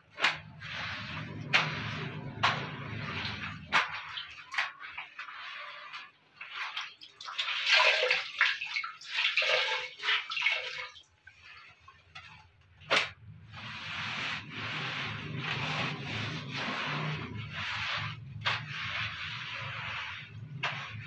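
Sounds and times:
water splashing in bucket: 0:00.0 - 0:21.0
wet cloth scrubbing plastic: 0:00.0 - 0:21.0.

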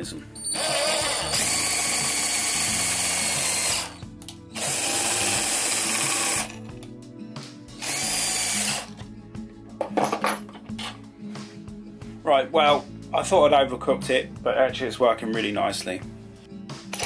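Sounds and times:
cordless drill spinning: 0:00.4 - 0:04.0, 0:04.6 - 0:06.7, 0:07.8 - 0:09.0.

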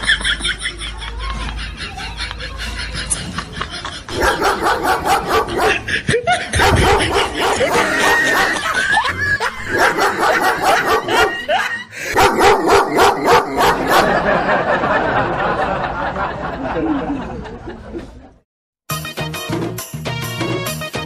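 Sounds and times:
dog barking from speaker: 0:04.1 - 0:05.8, 0:06.6 - 0:08.7, 0:09.7 - 0:11.5, 0:12.2 - 0:14.2.

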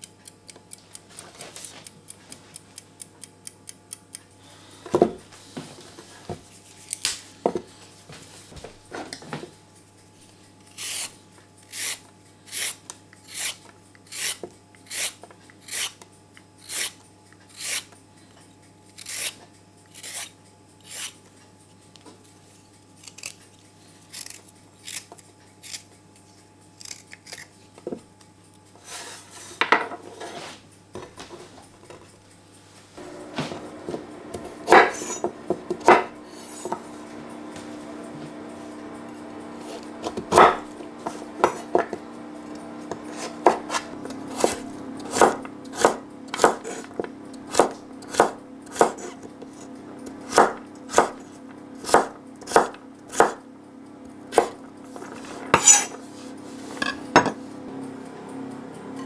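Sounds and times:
kitchen timer ticking: 0:00.0 - 0:04.4
vegetable peeler scraping carrot: 0:10.6 - 0:16.0, 0:16.6 - 0:18.0, 0:18.9 - 0:21.2, 0:23.0 - 0:23.5, 0:24.1 - 0:25.9, 0:26.8 - 0:27.6, 0:42.6 - 0:49.7, 0:55.6 - 0:55.9.

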